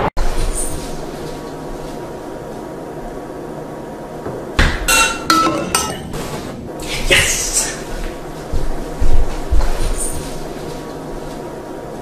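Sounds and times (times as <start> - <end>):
metallic clink: 4.9 - 6.1.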